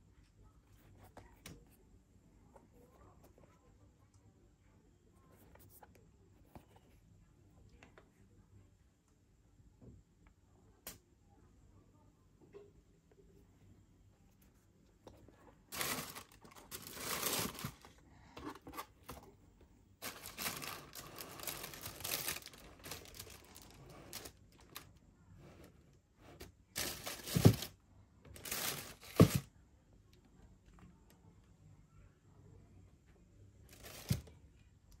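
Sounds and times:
tissue paper crinkling: 0:15.7 - 0:17.9, 0:20.0 - 0:24.8, 0:26.8 - 0:27.7, 0:28.4 - 0:29.4.

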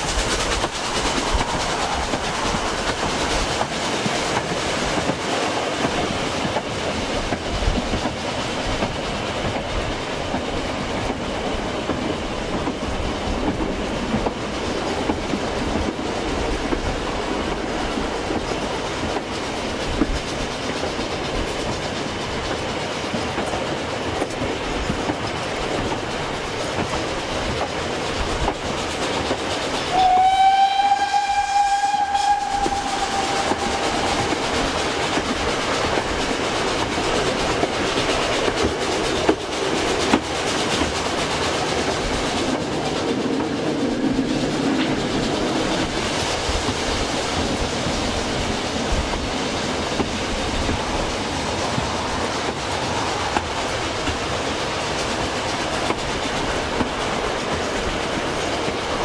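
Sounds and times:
train wheels clacking on rail joints: 0:00.0 - 0:59.0
steam locomotive whistle: 0:29.9 - 0:34.5.

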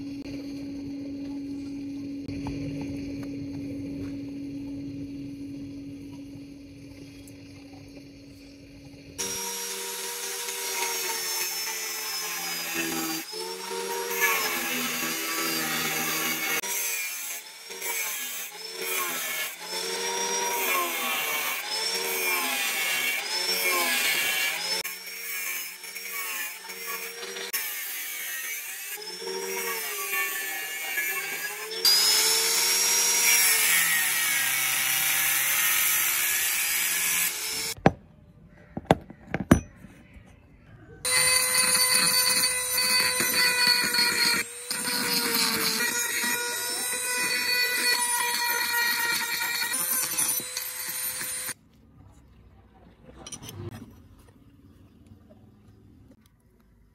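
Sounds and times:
rotary tool high whine: 0:00.0 - 0:37.9, 0:41.0 - 0:51.6
angle grinder cutting metal: 0:09.2 - 0:37.8, 0:41.0 - 0:51.6.

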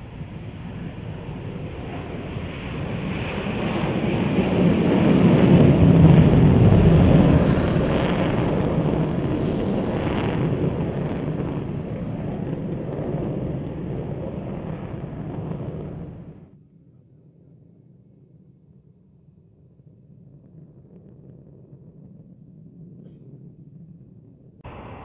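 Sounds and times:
jet engines roaring on takeoff: 0:00.0 - 0:16.5, 0:24.6 - 0:25.0.

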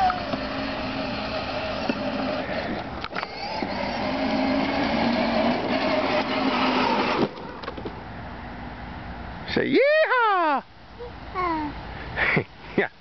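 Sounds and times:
electric ride-on toy motor whining: 0:00.0 - 0:07.6.

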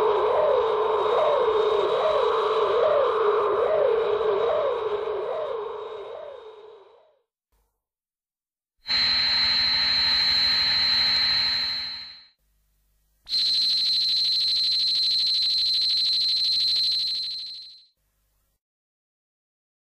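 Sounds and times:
high-pitched electronic whines: 0:00.0 - 0:07.1, 0:08.9 - 0:12.4, 0:13.3 - 0:17.9.

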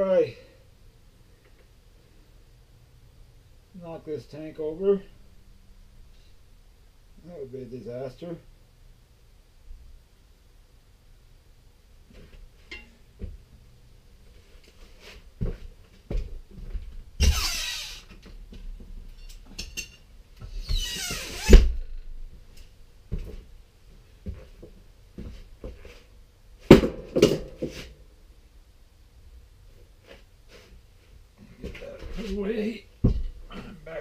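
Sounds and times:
knocks and thuds: 0:33.0 - 0:33.5.

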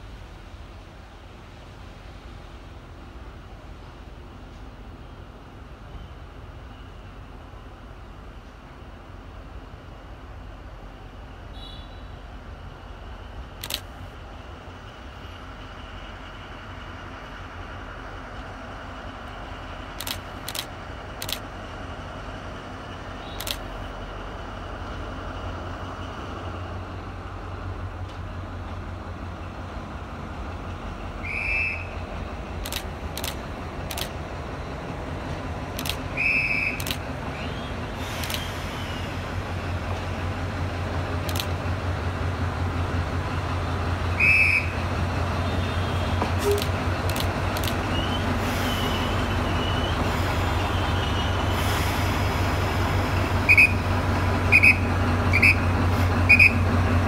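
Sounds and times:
locomotive diesel engine rumble: 0:00.0 - 0:57.0
sharp clicks: 0:13.6 - 0:14.0, 0:20.0 - 0:21.5, 0:23.3 - 0:23.7, 0:32.6 - 0:34.2, 0:35.7 - 0:37.1, 0:38.1 - 0:38.5, 0:41.2 - 0:41.6, 0:46.4 - 0:48.0.

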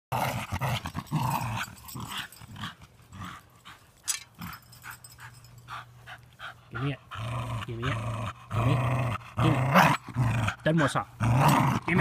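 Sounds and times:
dog growling: 0:00.1 - 0:03.8, 0:06.8 - 0:10.6, 0:11.2 - 0:12.0.

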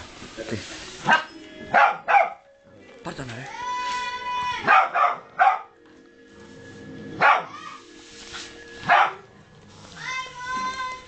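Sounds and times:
dog barking: 0:01.0 - 0:02.4, 0:04.6 - 0:05.8, 0:07.2 - 0:07.5, 0:08.8 - 0:09.2.

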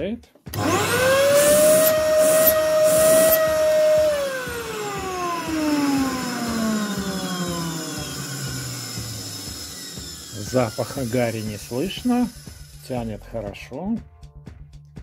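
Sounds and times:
vacuum cleaner motor whining: 0:00.5 - 0:13.2.

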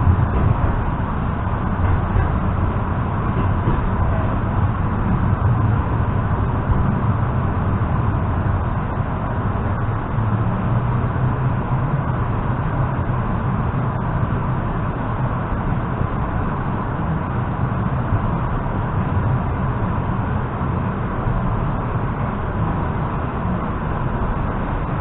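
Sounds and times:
train wheels rumbling on rails: 0:00.0 - 0:25.0.

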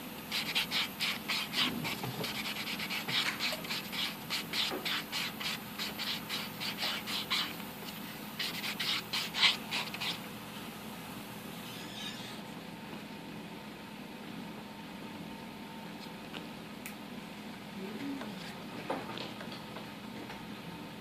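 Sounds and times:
nail file rasping on nails: 0:00.3 - 0:10.2.

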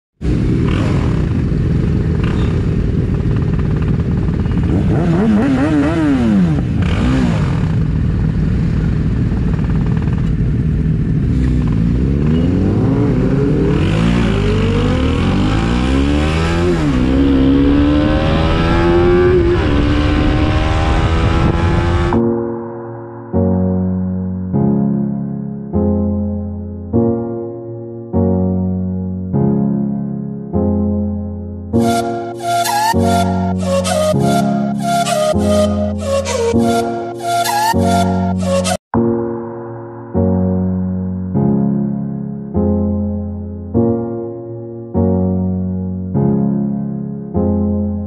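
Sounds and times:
motorcycle engine accelerating: 0:00.2 - 0:22.4.

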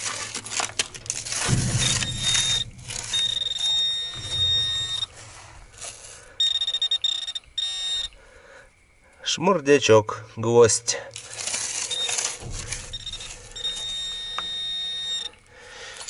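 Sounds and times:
rustling: 0:00.0 - 0:08.2, 0:10.9 - 0:16.0
metal detector high steady tone: 0:01.4 - 0:08.2, 0:11.8 - 0:15.5.

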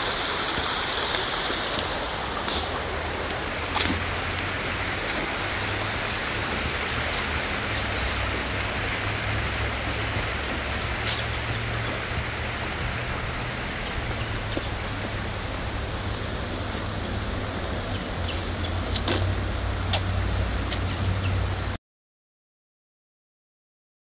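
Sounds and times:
stream water rushing: 0:00.0 - 0:21.8
footsteps on wooden steps: 0:01.7 - 0:16.3.

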